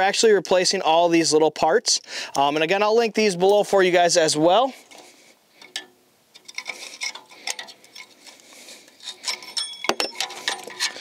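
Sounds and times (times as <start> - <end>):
pliers clicking and scraping on metal: 5.6 - 11.0
small metallic ticks: 5.6 - 11.0.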